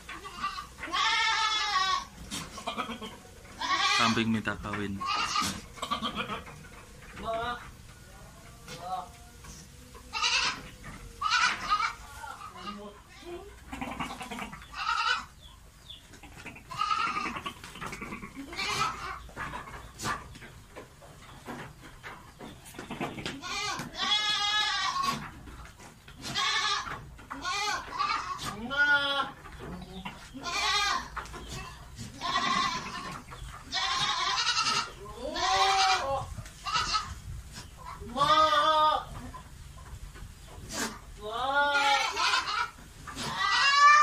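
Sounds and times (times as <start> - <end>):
goats bleating: 0.1 - 7.8, 8.5 - 15.5, 16.2 - 19.5, 22.8 - 25.4, 26.1 - 37.2, 37.9 - 39.4, 40.7 - 44.0.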